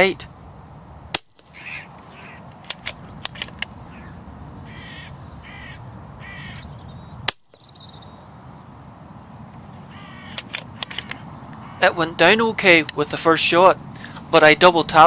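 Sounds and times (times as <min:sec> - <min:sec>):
crow cawing: 0:01.4 - 0:02.5, 0:03.8 - 0:06.7, 0:09.8 - 0:12.0.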